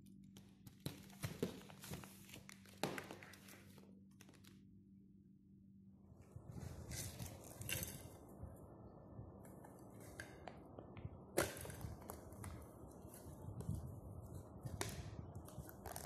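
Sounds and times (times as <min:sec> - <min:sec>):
plastic packaging crinkling: 0:00.8 - 0:04.6.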